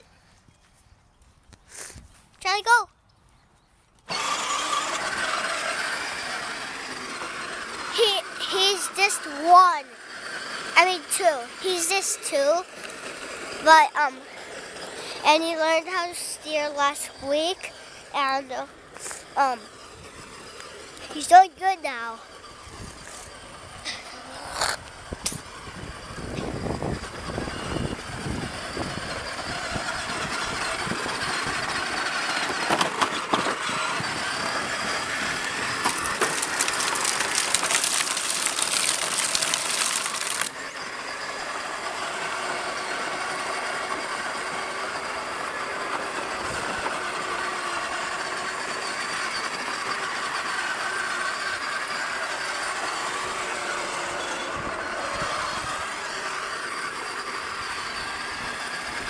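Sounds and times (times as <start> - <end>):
electric motor whine: 3.9 - 21.2, 21.8 - 59.0
plastic wheels rattling over ground: 25.9 - 40.6.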